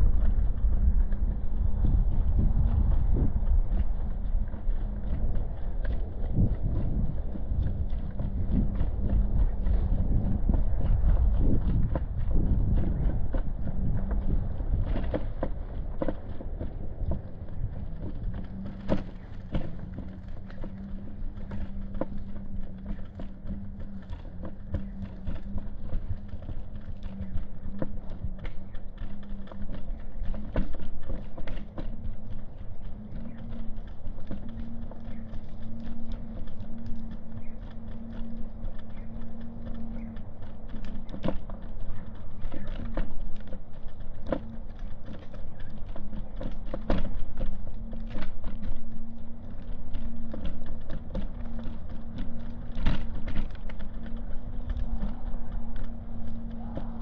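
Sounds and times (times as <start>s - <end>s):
footsteps on pavement: 0.0s - 57.0s
steady low hum: 0.0s - 57.0s.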